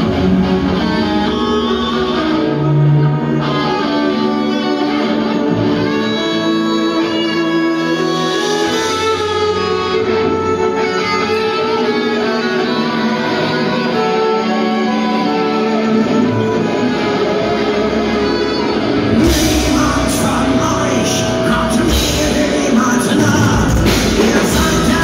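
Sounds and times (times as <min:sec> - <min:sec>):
drums: 0:00.0 - 0:02.4, 0:08.0 - 0:11.6, 0:17.8 - 0:25.0
electric guitars: 0:00.0 - 0:25.0
violin melody: 0:00.0 - 0:25.0.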